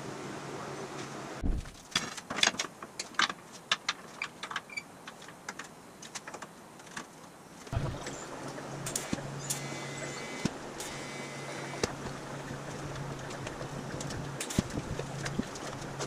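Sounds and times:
low thump: 0:01.4 - 0:01.8
steady shop hum: 0:07.7 - 0:16.0.

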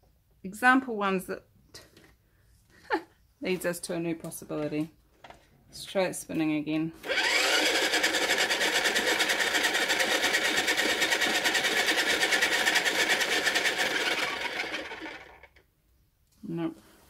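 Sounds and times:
pottery wheel motor whirring: 0:07.0 - 0:15.6.

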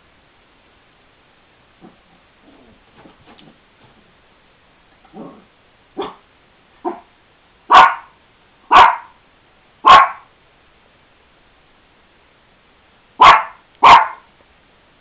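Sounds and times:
small dog barking: 0:05.1 - 0:07.1, 0:07.7 - 0:09.2, 0:09.8 - 0:10.3, 0:13.2 - 0:14.3.

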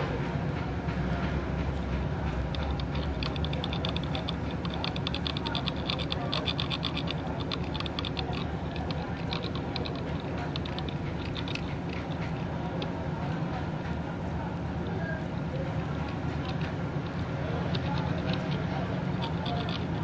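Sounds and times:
tweezers clicking and scraping: 0:02.6 - 0:12.9, 0:15.8 - 0:20.0.

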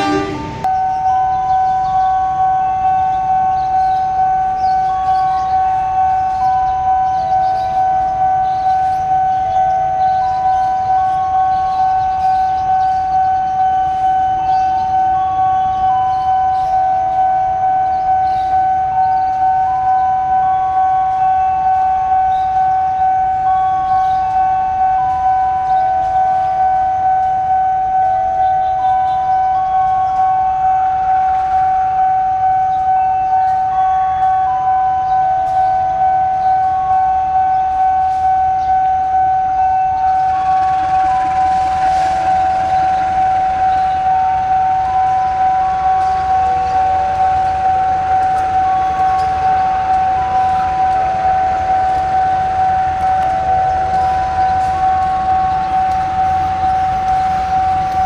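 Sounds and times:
tones stepping in pitch: 0:00.0 - 0:01.5
level crossing alarm pulsing: 0:00.0 - 0:58.0
locomotive engine rumble: 0:00.0 - 0:58.0.

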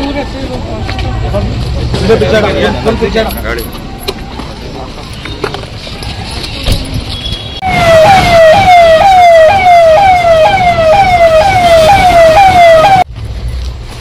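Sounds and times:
police siren wailing: 0:07.6 - 0:13.1.

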